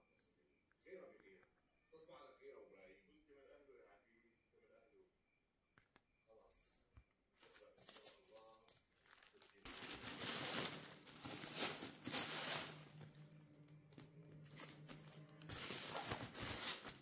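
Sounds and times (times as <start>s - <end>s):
rustling handling noise: 7.4s - 17.0s
background music: 9.7s - 17.0s.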